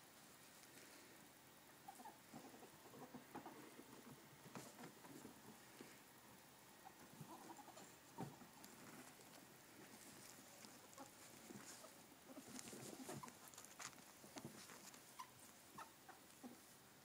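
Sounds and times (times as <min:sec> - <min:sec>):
soft clicks and rustles: 0:00.2 - 0:01.2, 0:06.9 - 0:16.8
ferrets scuffling on a cushion: 0:07.1 - 0:16.8.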